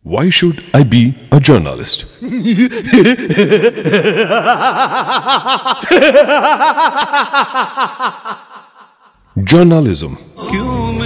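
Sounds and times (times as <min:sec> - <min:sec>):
person laughing: 0:02.2 - 0:09.1
higher-pitched laughter: 0:02.2 - 0:09.2.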